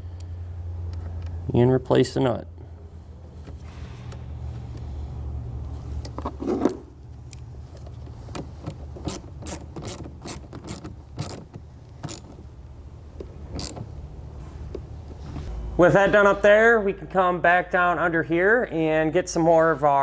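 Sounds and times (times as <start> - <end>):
ratchet clicking: 9.0 - 12.4, 13.5 - 13.9.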